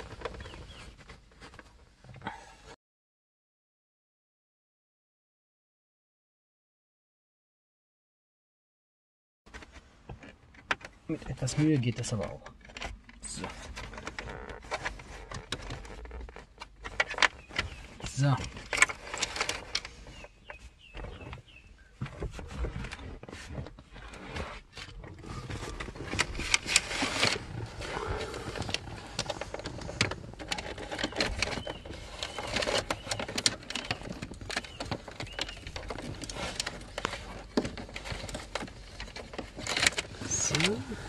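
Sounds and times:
cable rustling and scraping on trim: 0:11.1 - 0:41.0.

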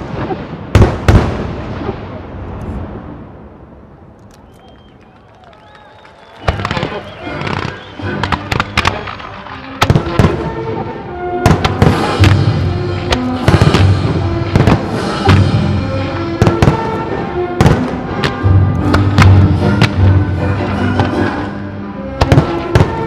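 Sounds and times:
fireworks banging: 0:05.7 - 0:21.5, 0:22.1 - 0:23.0.

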